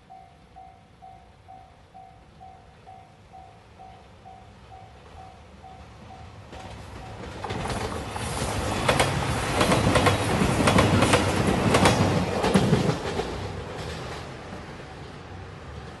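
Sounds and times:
diesel train passing: 0.0 - 16.0
wheels clacking over rail joints: 6.4 - 16.0.

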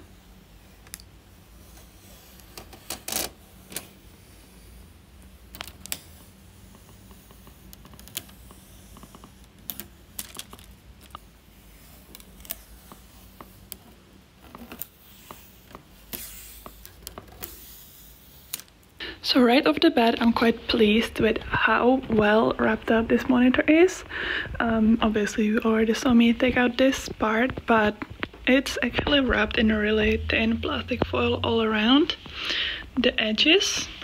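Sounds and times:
plastic film crinkling: 9.0 - 11.2
plastic film rustle: 9.0 - 11.2.

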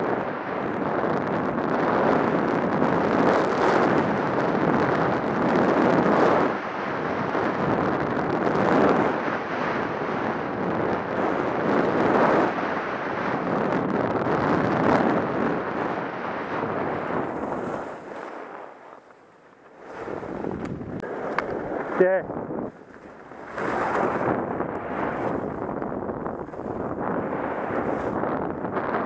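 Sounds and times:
wind rushing over microphone: 0.0 - 29.0
skis scraping over snow: 16.0 - 29.0.

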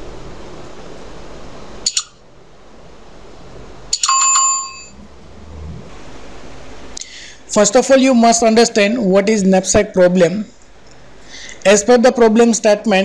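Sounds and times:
faint steady hiss: 0.0 - 13.0
bright bell ding: 3.9 - 5.0.

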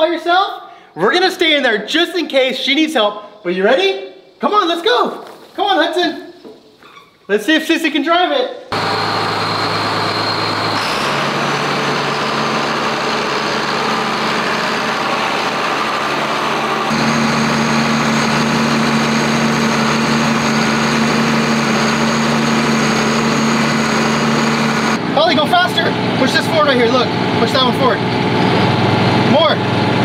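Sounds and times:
tractor diesel engine running: 8.7 - 30.0
thin high whine: 12.1 - 25.0.

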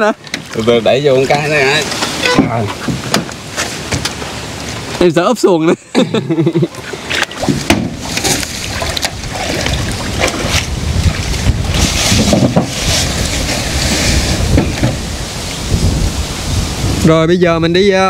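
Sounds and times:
sharp knocks: 2.2 - 4.1, 7.4 - 8.4
gusty wind on microphone: 7.4 - 18.0.

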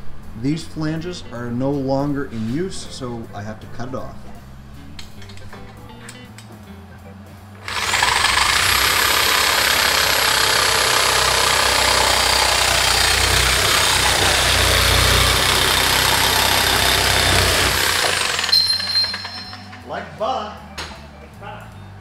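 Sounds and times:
reciprocating saw cutting metal: 7.6 - 19.7.

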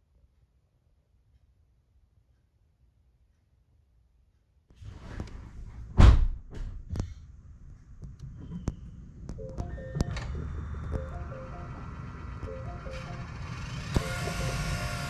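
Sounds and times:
heavy thump: 5.6 - 7.1
stepped electronic tones: 8.5 - 15.0
steady higher tones: 9.3 - 15.0.

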